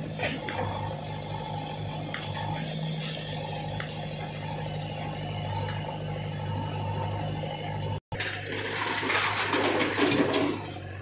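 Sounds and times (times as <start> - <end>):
heavy diesel engine running: 0.0 - 11.0.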